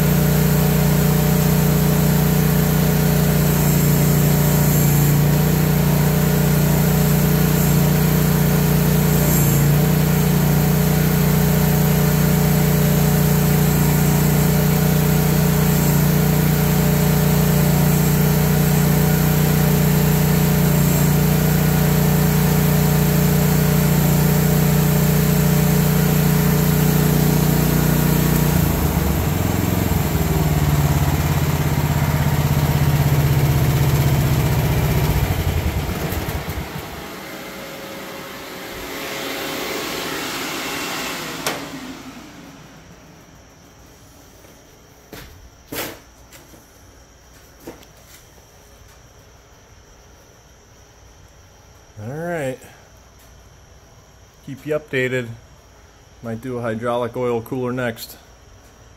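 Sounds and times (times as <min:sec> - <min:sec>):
excavator engine running: 0:00.0 - 0:43.5.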